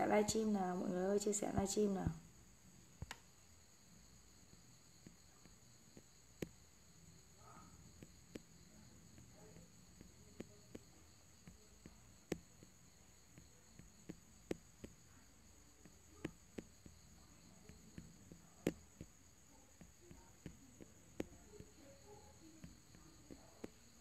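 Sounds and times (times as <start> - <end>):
high-pitched hiss: 0.0 - 24.0
small clicks: 3.0 - 3.3.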